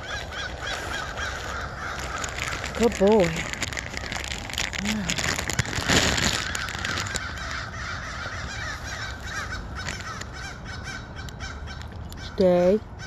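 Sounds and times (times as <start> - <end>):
handling rustle: 0.0 - 10.4
crows cawing: 0.0 - 13.0.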